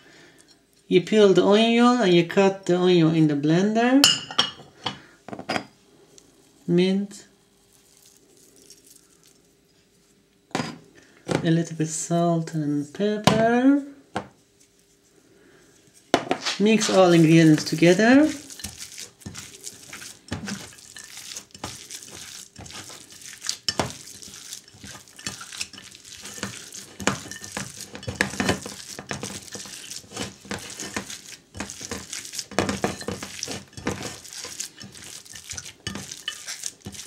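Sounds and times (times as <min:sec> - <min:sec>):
hands squishing meat mixture: 0:07.7 - 0:09.5, 0:16.4 - 0:37.0.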